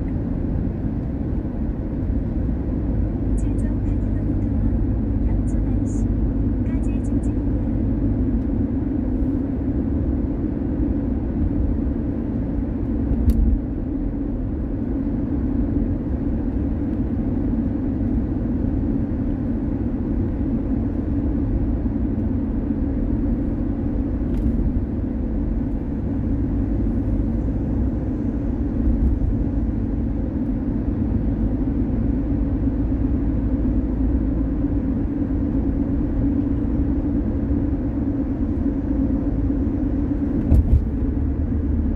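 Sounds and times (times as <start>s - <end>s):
car engine and tyre rumble: 0.0s - 41.9s.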